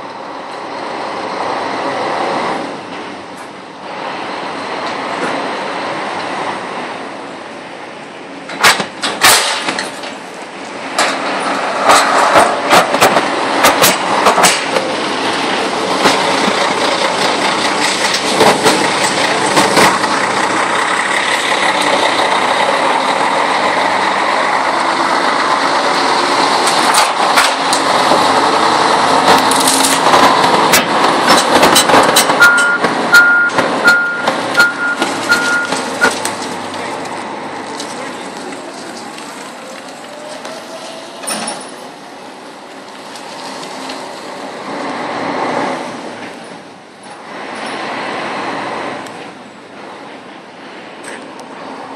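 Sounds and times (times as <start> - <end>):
forklift motor and hydraulics: 0.0 - 51.9
clanks and knocks: 8.5 - 10.2, 29.3 - 37.2
reversing alarm beeps: 32.4 - 36.2.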